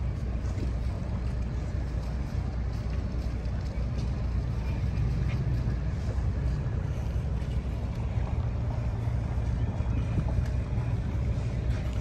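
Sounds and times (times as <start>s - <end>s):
boat engine idling: 0.0s - 12.0s
wind on microphone: 0.0s - 12.0s.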